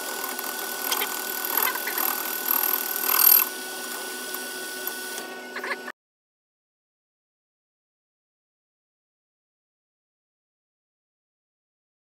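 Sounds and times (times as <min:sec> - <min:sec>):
cutting tool scraping metal: 0:00.0 - 0:05.8
metal lathe running: 0:00.0 - 0:05.8.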